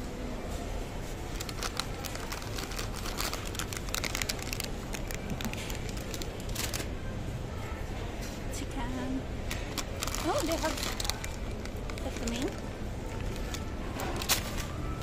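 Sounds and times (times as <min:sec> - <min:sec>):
plastic wrapper crinkling: 0:01.2 - 0:06.9, 0:09.5 - 0:15.0.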